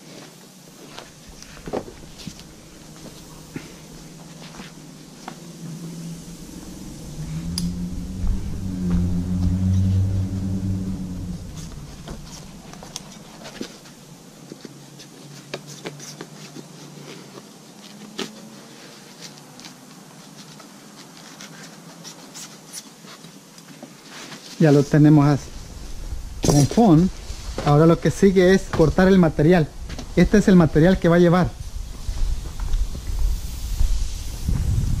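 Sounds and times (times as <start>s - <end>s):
low motor-like hum: 1.1s - 14.1s, 24.9s - 27.8s.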